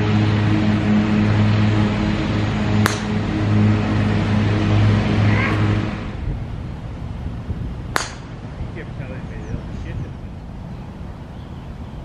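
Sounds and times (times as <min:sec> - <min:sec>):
engine hum: 0:00.0 - 0:12.0
golf club striking ball: 0:02.7 - 0:03.4, 0:07.8 - 0:08.5.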